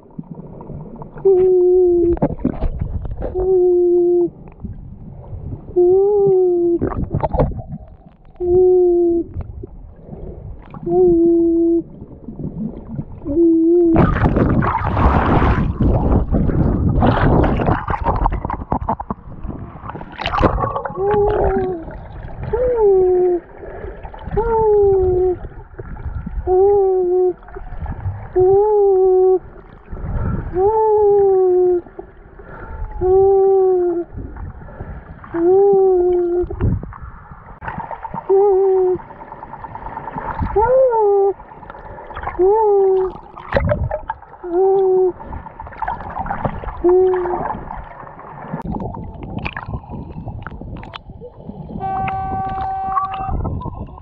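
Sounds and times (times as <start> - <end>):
water rushing and bubbling: 0.0 - 54.0
person hooting underwater: 1.2 - 2.2, 3.2 - 4.5, 5.7 - 7.3, 8.3 - 9.5, 10.7 - 14.9, 20.2 - 25.6, 26.2 - 29.7, 30.3 - 34.4, 35.2 - 36.7, 38.2 - 39.1, 40.4 - 41.5, 42.2 - 45.3, 46.7 - 47.8, 51.8 - 54.0.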